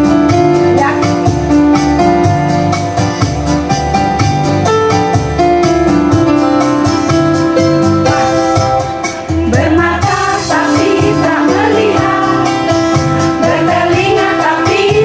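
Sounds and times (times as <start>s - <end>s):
electronic keyboard: 0.0s - 15.0s
women's choir singing: 9.4s - 15.0s.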